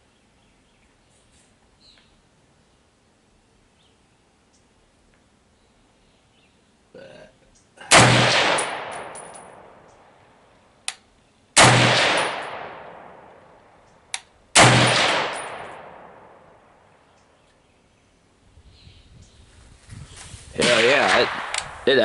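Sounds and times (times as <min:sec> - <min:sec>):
rifle shots with echo: 0:07.9 - 0:09.9, 0:11.6 - 0:13.6, 0:14.6 - 0:16.8, 0:20.6 - 0:22.0
sharp click: 0:10.8 - 0:11.1, 0:21.3 - 0:21.7.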